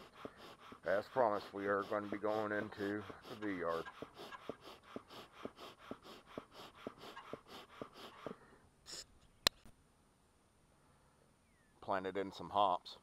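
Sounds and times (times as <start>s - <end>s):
bellows puffing air: 0.0s - 9.1s.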